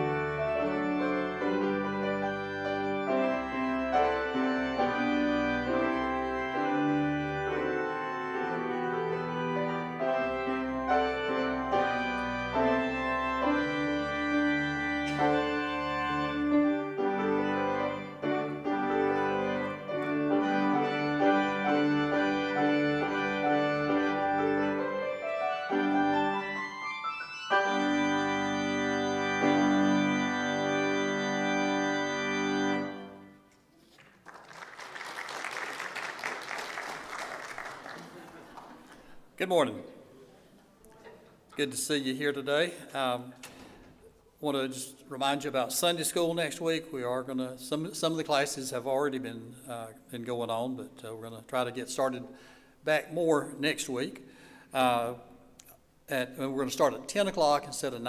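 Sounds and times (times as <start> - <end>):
organ playing chords: 0.0 - 33.6.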